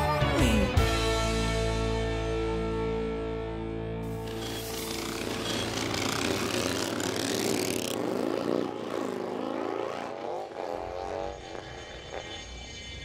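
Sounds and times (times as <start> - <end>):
vehicle passing by: 4.1 - 11.4.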